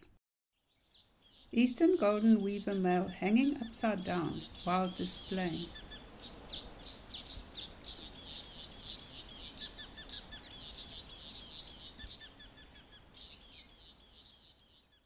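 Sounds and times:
bird chattering high chirps: 0:01.3 - 0:14.8.

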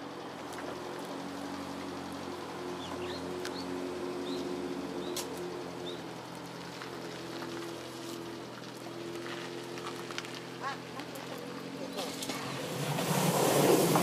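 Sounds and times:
bird chirping: 0:02.8 - 0:05.2.

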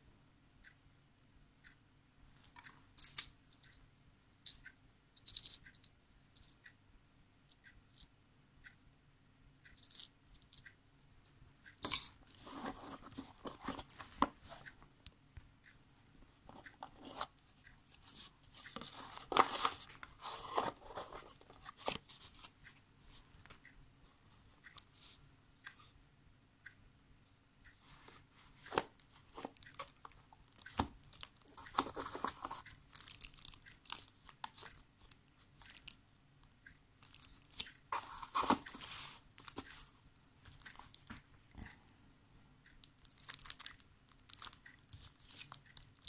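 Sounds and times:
packaging crinkly rustling: 0:28.7 - 0:35.9, 0:43.0 - 0:46.0.

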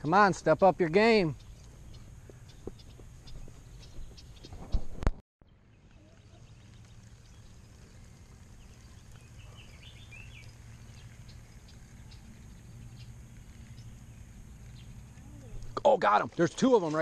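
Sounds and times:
steady low hum: 0:05.4 - 0:16.3.

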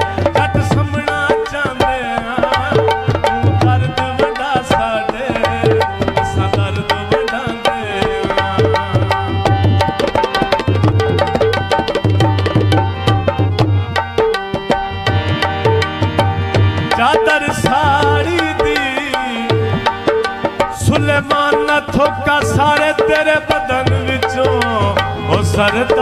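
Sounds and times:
hand drums fast rhythm: 0:00.0 - 0:26.0
melody instruments holding notes: 0:05.0 - 0:21.0.

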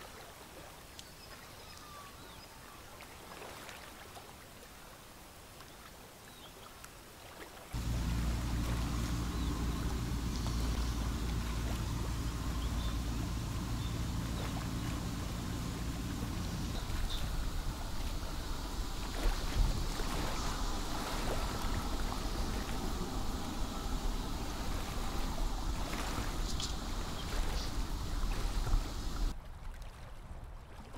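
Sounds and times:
moving water hiss: 0:07.8 - 0:29.3
wind rumbling on microphone: 0:07.8 - 0:29.5.

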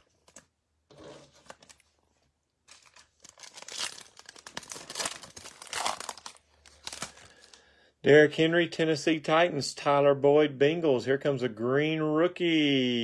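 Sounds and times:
foil wrapper crinkling and tearing: 0:02.6 - 0:07.6.

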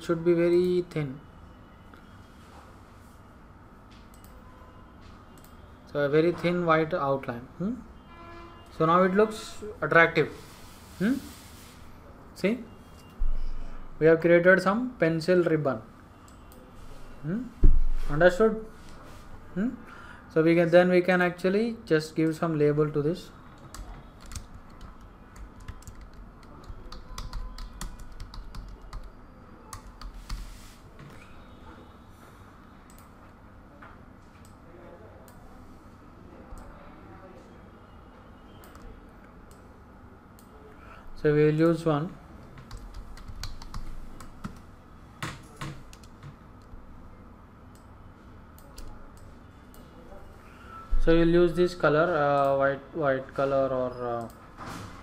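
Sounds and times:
computer keyboard typing: 0:23.5 - 0:30.5, 0:42.5 - 0:46.8.

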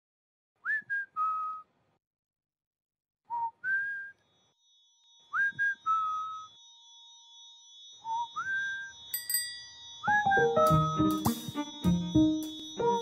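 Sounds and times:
person whistling a tune: 0:00.6 - 0:01.7, 0:03.3 - 0:04.2, 0:05.3 - 0:06.5, 0:08.0 - 0:09.0, 0:10.0 - 0:12.2
faint high sustained chime: 0:04.4 - 0:10.3.

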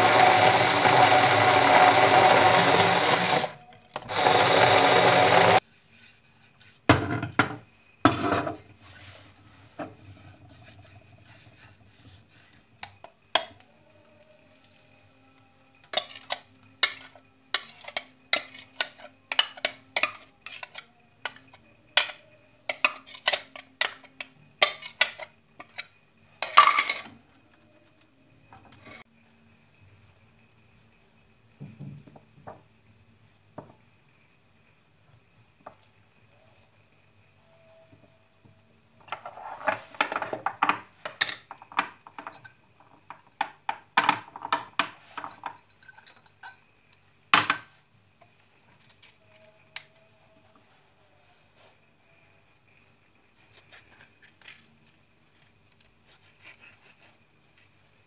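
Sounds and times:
hand blender whirring: 0:00.0 - 0:05.6.

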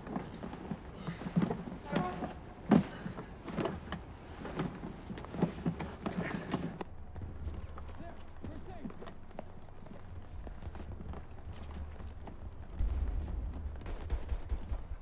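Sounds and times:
suitcase knocking and rustling: 0:00.0 - 0:06.8
footsteps down stairs: 0:00.0 - 0:14.3.

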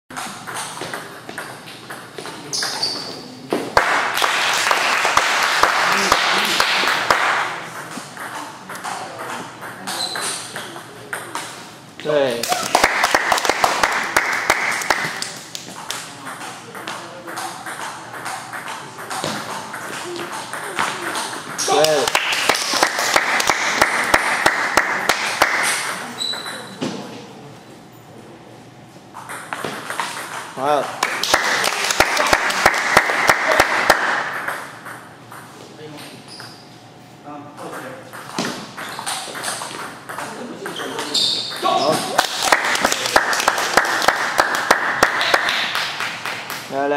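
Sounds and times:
table tennis balls clicking: 0:00.1 - 0:02.8, 0:05.2 - 0:11.6, 0:14.6 - 0:26.8
voices in a large hall: 0:02.0 - 0:46.9.

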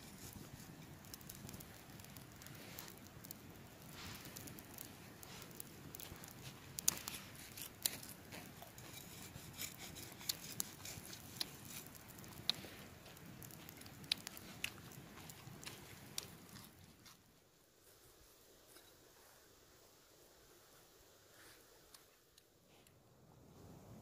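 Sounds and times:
cleaver scraping charred meat: 0:00.0 - 0:17.2
campfire crackling and popping: 0:00.0 - 0:17.3.

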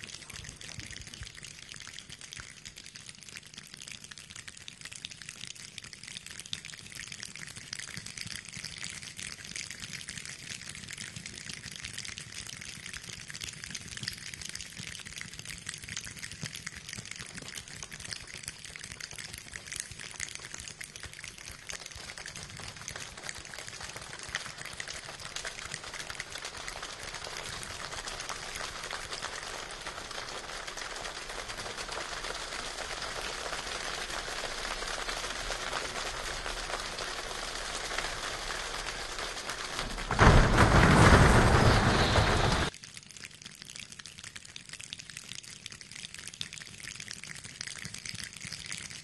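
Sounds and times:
floodwater running: 0:18.6 - 0:42.7
heavy rain pattering: 0:19.3 - 0:42.7
car splashing through floodwater: 0:39.9 - 0:42.7.

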